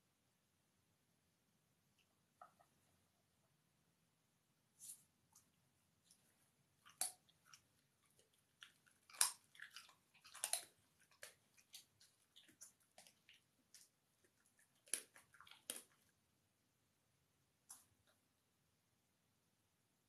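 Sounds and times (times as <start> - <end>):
dog crunching and chewing food: 6.2 - 16.2.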